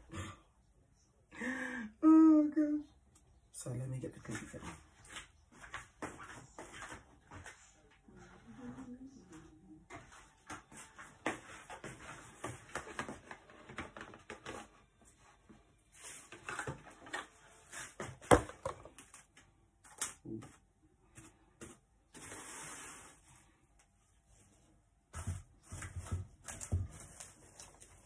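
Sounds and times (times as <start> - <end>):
plastic film rustle: 26.6 - 28.0.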